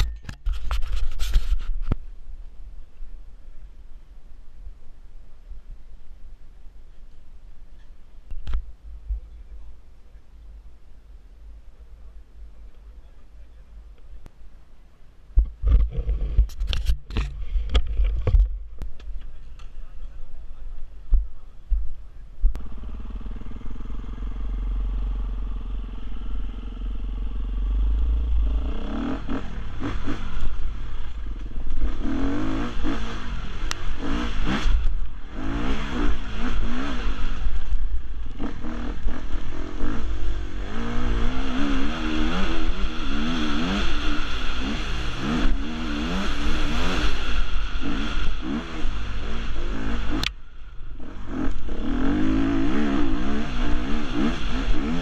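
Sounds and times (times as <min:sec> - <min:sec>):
motorcycle engine revving: 0:22.4 - 0:55.0.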